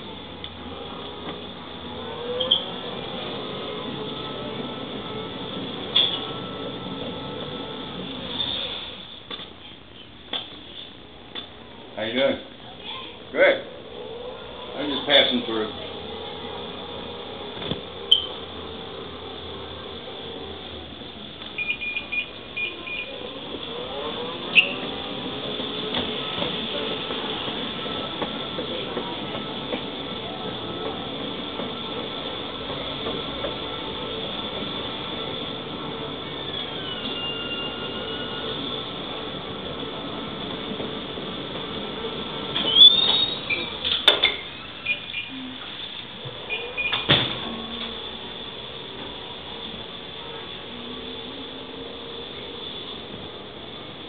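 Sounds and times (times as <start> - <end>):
electric scooter humming: 0.0 - 8.7, 13.6 - 54.0
short squeal: 2.3 - 2.9, 8.3 - 9.0, 18.1 - 18.6, 24.5 - 25.0, 36.2 - 38.9, 42.6 - 45.5, 46.4 - 47.1.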